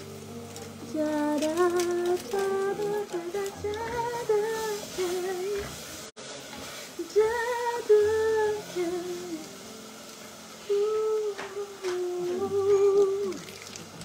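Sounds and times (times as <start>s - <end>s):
woman singing wordless tune: 0.8s - 5.8s, 7.0s - 9.7s, 10.6s - 13.5s.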